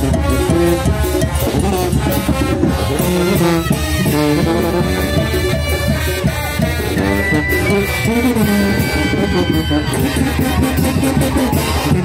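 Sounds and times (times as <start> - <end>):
brass band playing: 0.0 - 12.0.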